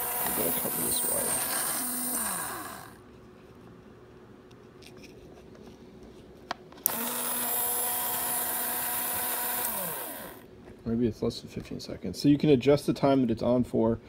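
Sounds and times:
small motor spinning and whining: 0.0 - 3.0, 6.9 - 10.4.

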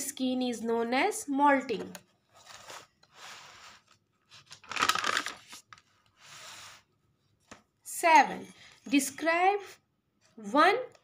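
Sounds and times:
notebook pages rustling: 2.3 - 6.8.

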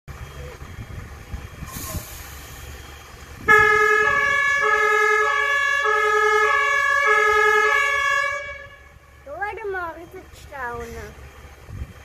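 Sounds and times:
fire truck two-tone siren: 0.1 - 9.5.

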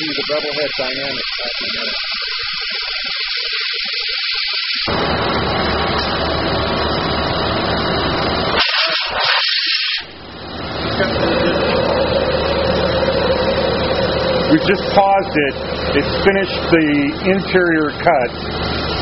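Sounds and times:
high-pressure waterjet hissing: 0.0 - 4.9, 8.6 - 10.1
steady hum: 0.0 - 19.0.

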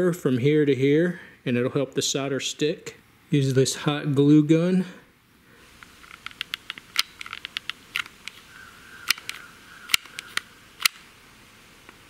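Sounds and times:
plastic tapping on batteries: 6.1 - 8.4, 9.0 - 11.0
glue gun trigger clicks: 9.0 - 11.1.

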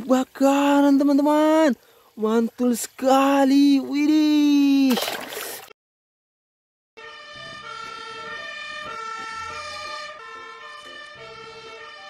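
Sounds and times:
fire engine two-tone siren: 7.0 - 12.0.

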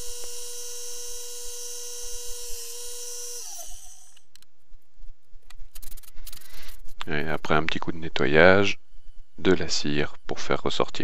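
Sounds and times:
electric power tool whining: 0.0 - 4.3.

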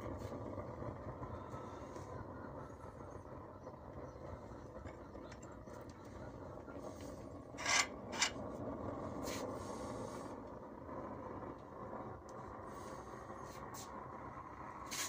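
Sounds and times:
pellet burner fan and flame: 0.0 - 15.0.

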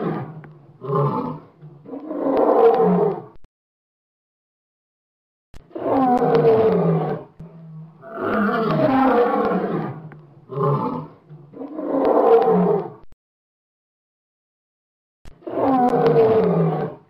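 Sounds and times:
lion roaring: 0.0 - 3.4, 5.7 - 13.0, 15.4 - 17.0.

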